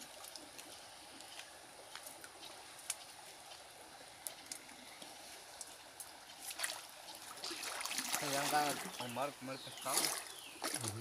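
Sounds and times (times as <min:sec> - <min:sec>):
small water drips: 0:00.0 - 0:09.1, 0:09.7 - 0:11.0
water trickling and lapping: 0:00.0 - 0:11.0
splash in water: 0:06.5 - 0:08.9.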